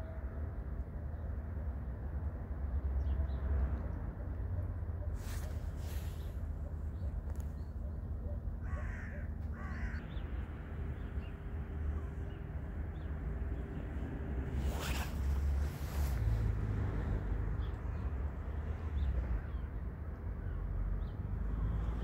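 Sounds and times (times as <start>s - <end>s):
steady low rumble: 9.4s - 20.2s.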